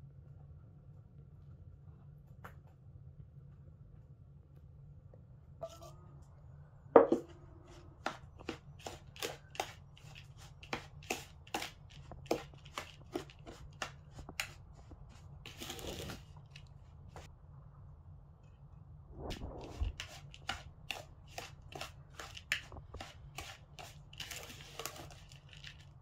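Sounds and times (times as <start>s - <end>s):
spoon scraping bowl: 5.6s - 6.0s, 8.4s - 16.3s, 19.3s - 25.8s.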